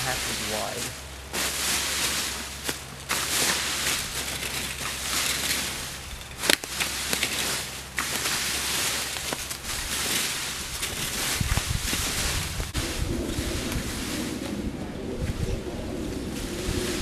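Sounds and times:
rakes scraping through dry leaves: 0:00.0 - 0:14.7, 0:15.5 - 0:17.0.

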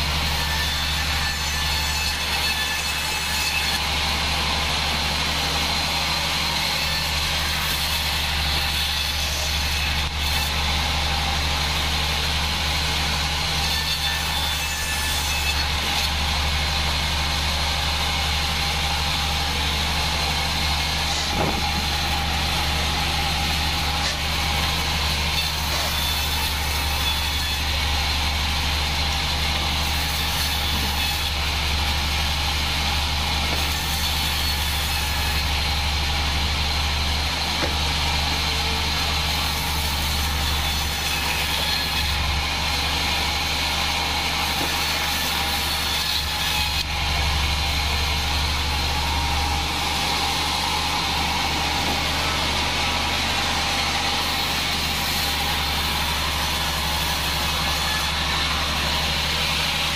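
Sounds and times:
sawmill engine drone: 0:00.0 - 0:59.9
band blade whirring: 0:20.8 - 0:22.8.

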